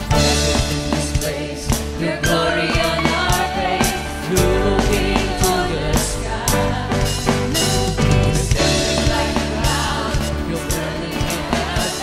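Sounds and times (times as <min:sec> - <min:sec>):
person singing: 0:00.0 - 0:07.0
acoustic guitar: 0:00.0 - 0:12.0
drum kit beat: 0:00.0 - 0:12.0
heavy bass: 0:00.0 - 0:12.0
live band playing: 0:00.0 - 0:12.0.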